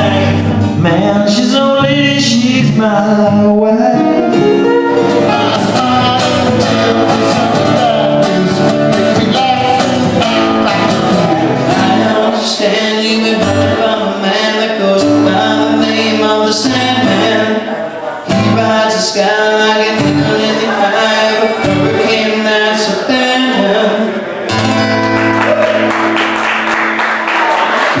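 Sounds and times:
man singing: 0.0 - 24.4
acoustic guitar: 0.0 - 28.0.

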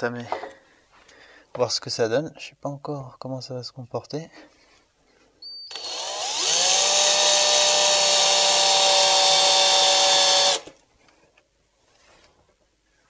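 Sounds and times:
drill whining with high squeal: 5.4 - 10.6.

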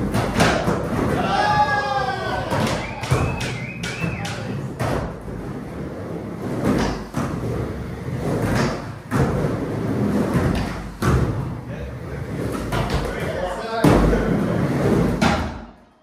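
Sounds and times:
skateboard thumping and clacking: 0.0 - 1.1, 2.5 - 5.2, 6.6 - 7.4, 8.3 - 9.5
skateboard wheels rolling on ramp: 0.0 - 15.4.

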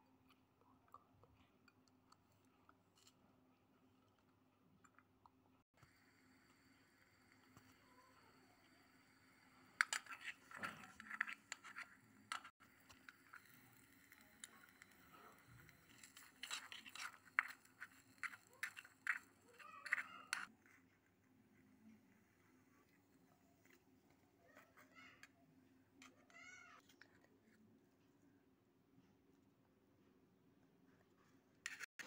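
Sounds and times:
fork scraping metal pot: 9.8 - 20.5.

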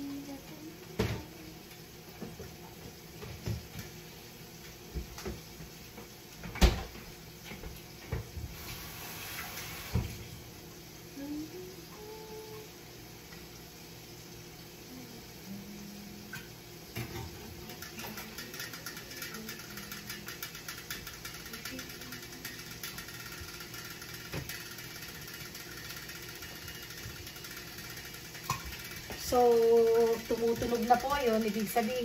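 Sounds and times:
meat crackling in a pan: 16.5 - 32.0.

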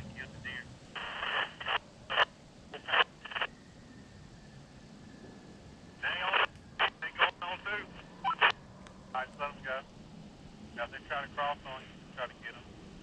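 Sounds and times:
garbled two-way radio transmission: 0.0 - 3.5, 6.0 - 8.6, 9.2 - 9.8, 10.8 - 12.7.

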